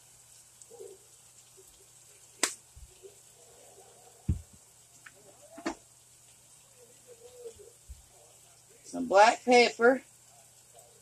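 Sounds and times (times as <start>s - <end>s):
dull thump: 4.3s - 4.6s
soft low thud: 4.3s - 4.6s.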